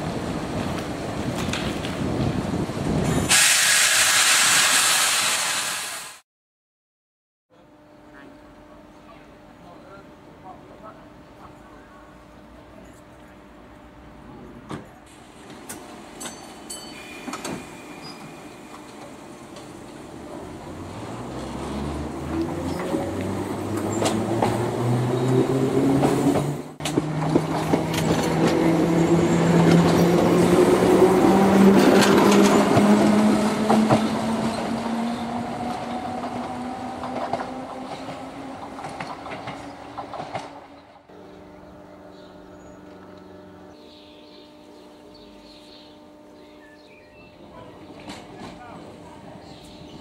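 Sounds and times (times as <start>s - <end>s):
wheels clattering on rail joints: 14.7s - 41.0s, 47.8s - 48.8s
electric train motors whining: 41.1s - 48.5s.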